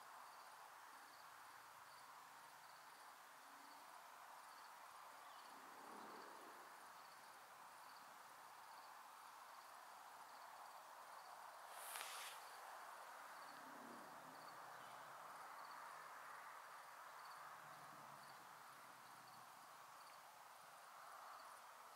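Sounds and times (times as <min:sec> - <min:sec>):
low steady hiss: 0:00.0 - 0:21.9
crickets chirping: 0:00.1 - 0:21.9
soft burst of noise: 0:11.6 - 0:13.3.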